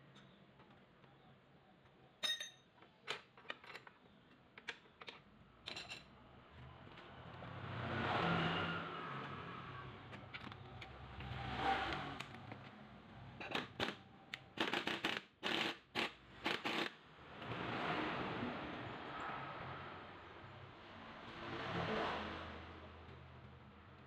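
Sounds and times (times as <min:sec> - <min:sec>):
pneumatic impact wrench bursts: 0:14.6 - 0:17.0.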